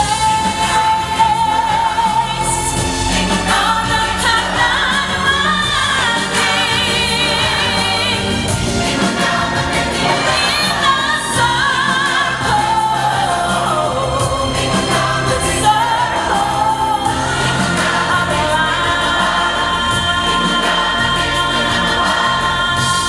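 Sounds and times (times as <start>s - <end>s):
backing music: 0.0s - 23.0s
choir singing: 0.0s - 23.0s.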